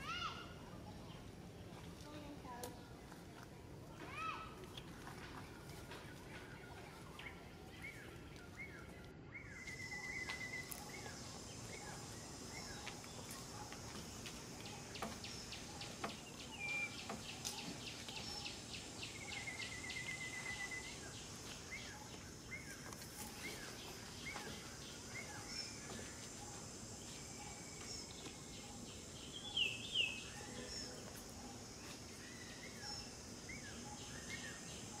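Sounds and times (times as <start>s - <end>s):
high insect drone: 9.6s - 35.0s
bird chirps and trills: 14.6s - 35.0s.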